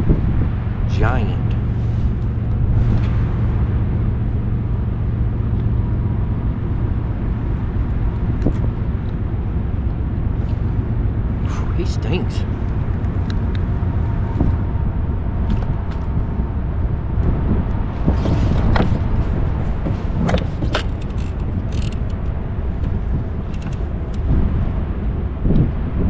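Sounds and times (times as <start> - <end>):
wind buffeting microphone: 0.0 - 26.0
fishing lure clicks and rattles: 21.0 - 22.1.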